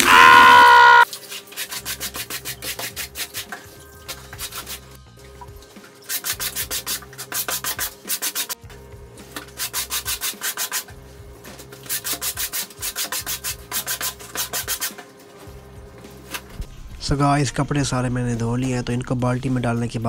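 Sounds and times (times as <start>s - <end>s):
wet shirt scrubbed by hand: 1.1s - 4.9s, 6.0s - 8.6s.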